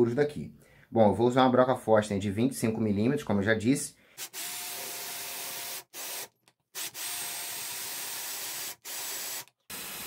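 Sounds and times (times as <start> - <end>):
power drill boring into wood: 4.2 - 10.0.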